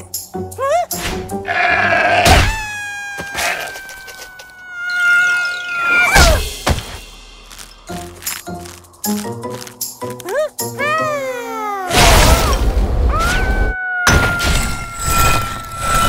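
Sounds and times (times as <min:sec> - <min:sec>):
music: 0:00.0 - 0:02.9, 0:05.4 - 0:13.7
cartoon goat-like bleat: 0:01.5 - 0:03.8
crash thud: 0:06.2 - 0:07.9.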